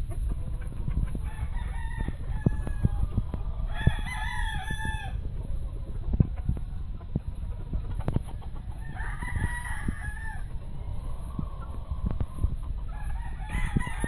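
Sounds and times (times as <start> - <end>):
low rumble: 0.0 - 14.0
rooster crowing: 1.2 - 3.0, 3.6 - 5.2, 8.8 - 10.5, 12.9 - 14.0.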